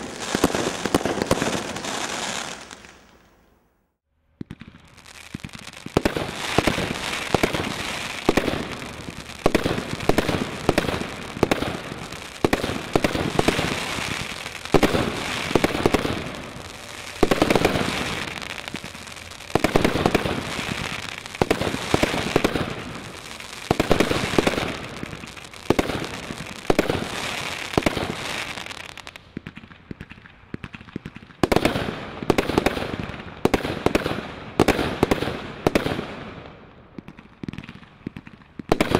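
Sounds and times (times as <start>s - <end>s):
firework crackling: 0.0s - 3.4s, 4.4s - 36.4s
firework shots: 0.0s - 3.4s, 4.4s - 38.9s.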